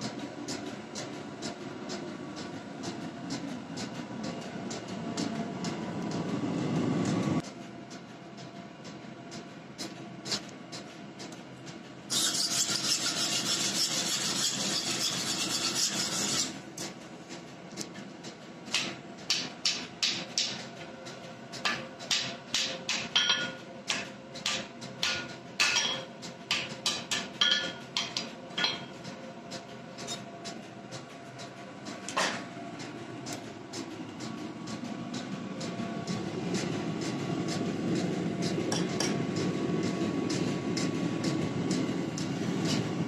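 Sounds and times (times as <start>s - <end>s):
steady forge noise: 0.0s - 43.0s
hammer blows on anvil: 21.7s - 29.0s.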